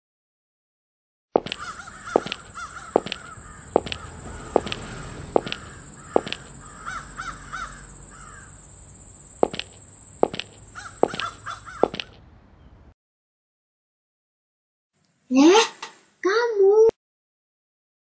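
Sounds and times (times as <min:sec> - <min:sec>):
footsteps: 0:01.4 - 0:06.8, 0:09.0 - 0:12.2
crows cawing: 0:01.4 - 0:12.1.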